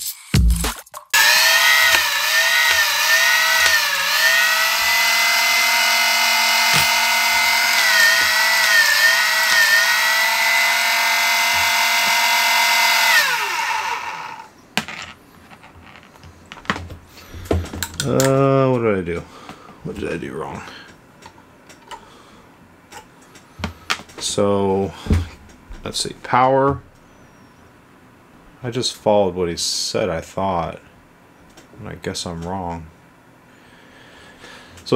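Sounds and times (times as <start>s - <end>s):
clicks: 1.2s - 12.3s
flywheel motors whining: 1.2s - 14.5s.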